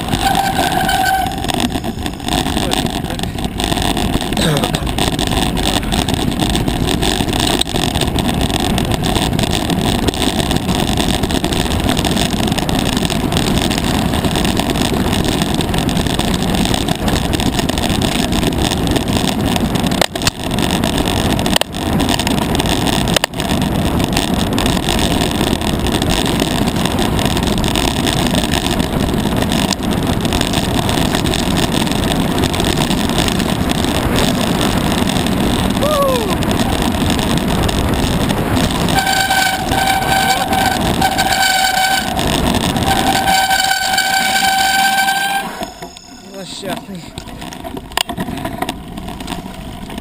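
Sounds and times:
bike rattling over rough ground: 0.0 - 50.0
tyre rumble: 0.0 - 50.0
wind rushing on microphone: 0.0 - 50.0.

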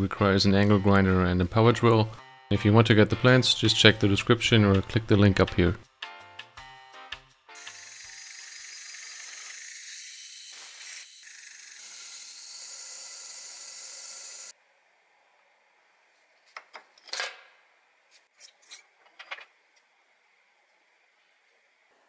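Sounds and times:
hole saw cutting metal: 7.6 - 14.5.

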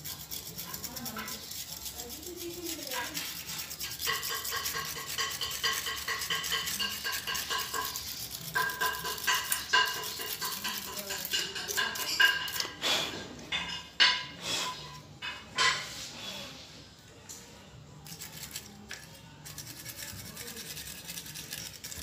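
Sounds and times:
brush scrubbing circuit board: 0.0 - 12.6, 18.1 - 22.0.

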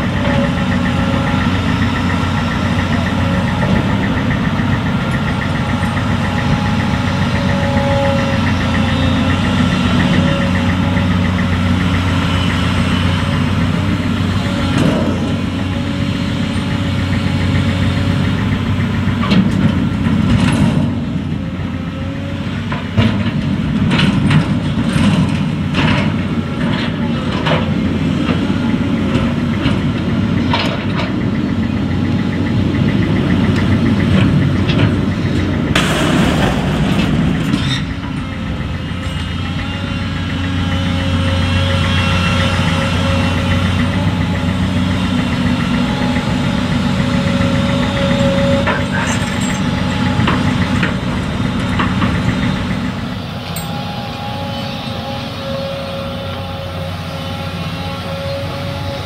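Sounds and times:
excavator diesel engine running: 0.0 - 59.0
metallic clanks and knocks: 34.0 - 39.4
rushing noise: 35.8 - 39.1.

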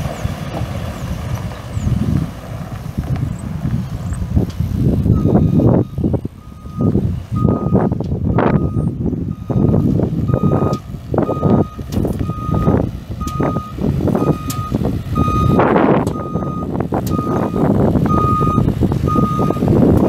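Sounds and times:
diesel engine rumble: 0.0 - 20.0
truck backup alarm beeping: 5.0 - 20.0.

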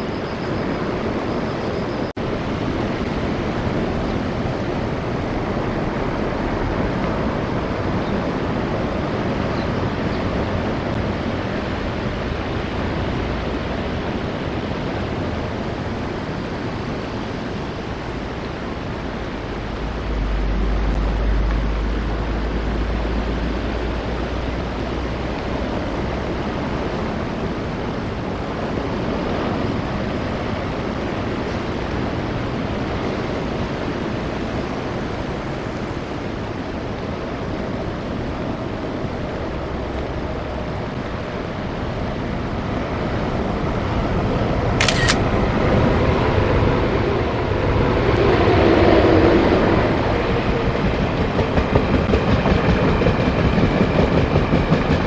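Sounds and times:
wind: 0.0 - 55.0
low rumble: 19.0 - 25.3.

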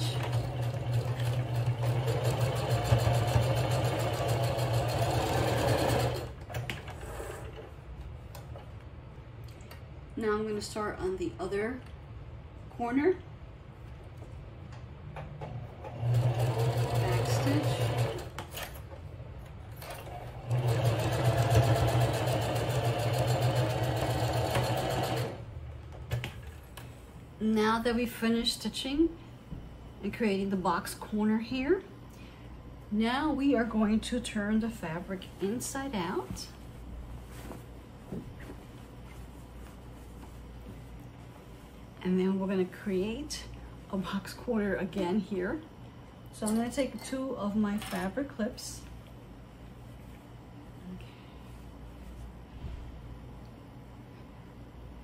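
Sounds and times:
sewing machine stitching: 0.0 - 7.7, 15.7 - 18.8, 19.8 - 25.4.

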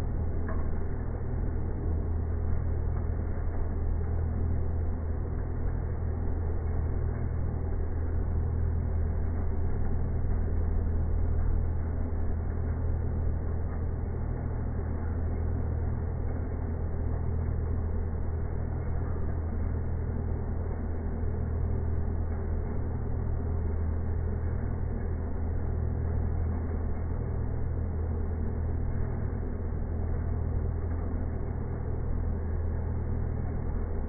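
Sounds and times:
lathe humming and rumbling: 0.0 - 34.0.

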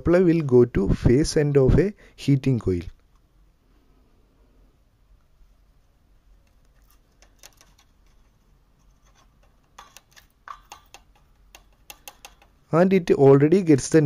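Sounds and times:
handling clicks and scratches: 6.3 - 12.6.

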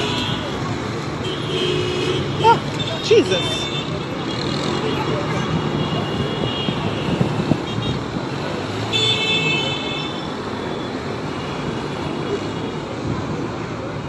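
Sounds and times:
low rumble of traffic engines: 0.0 - 14.0
car horn: 1.2 - 8.0, 8.9 - 10.4.

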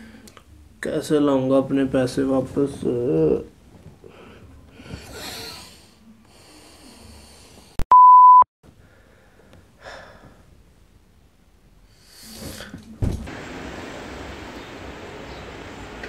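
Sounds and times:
soft breathing: 4.0 - 7.8
electronic censor beep: 7.8 - 8.5
thump: 13.0 - 13.3
steady street hiss: 13.3 - 16.0.

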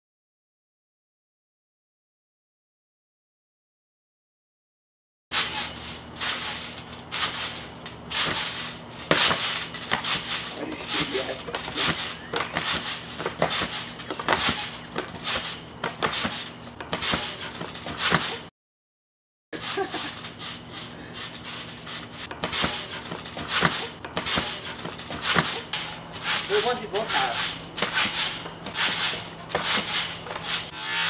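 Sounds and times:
thumps on a trampoline: 5.4 - 18.5, 19.6 - 30.8
voices: 10.5 - 13.0, 26.5 - 27.4.

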